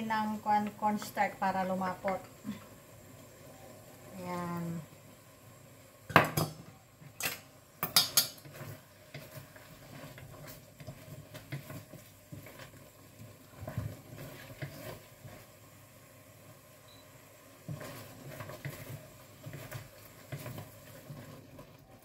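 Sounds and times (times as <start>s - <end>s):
utensil clinking and scraping wok: 7.2s - 15.5s, 17.6s - 21.5s.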